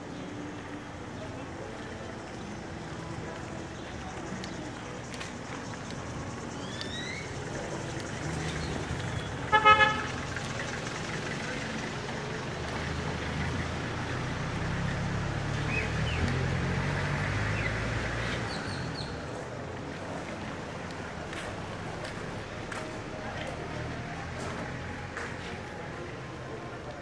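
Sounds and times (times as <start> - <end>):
street noise: 0.0 - 27.0
engine passing with low hum: 7.2 - 27.0
vehicle horn toots: 9.5 - 10.2.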